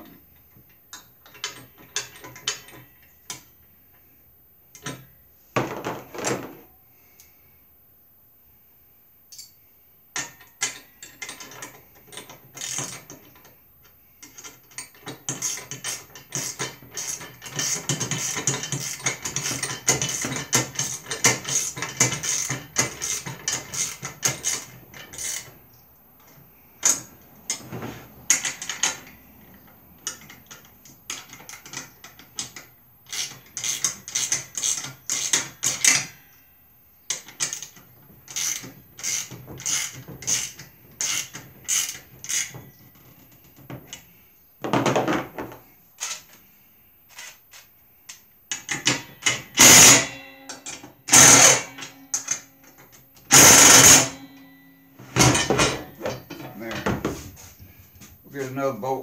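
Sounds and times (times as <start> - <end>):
ratchet wrench clicking: 32.4 - 36.0, 38.3 - 42.5, 46.0 - 46.3, 51.1 - 52.4, 53.3 - 54.2.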